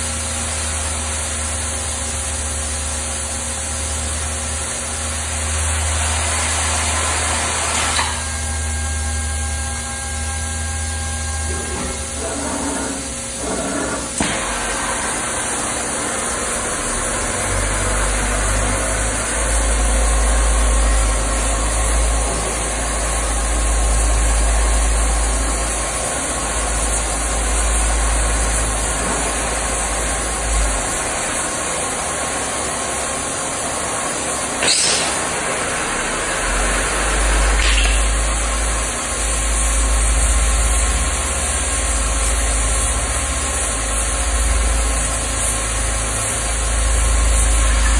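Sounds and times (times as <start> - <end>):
cutting torch hiss: 3.6 - 47.9
low machine rumble: 8.3 - 32.5.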